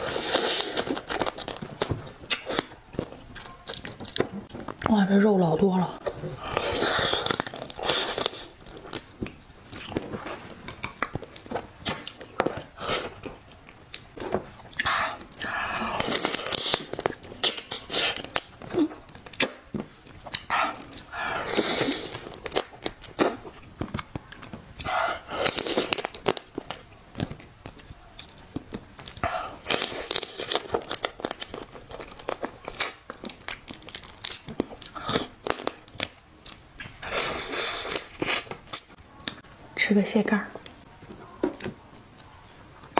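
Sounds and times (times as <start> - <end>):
slurping and sucking: 0.0 - 1.0
shell cracking and crunching: 0.0 - 5.0, 6.0 - 10.1, 10.7 - 39.4
wet chewing: 6.0 - 39.5.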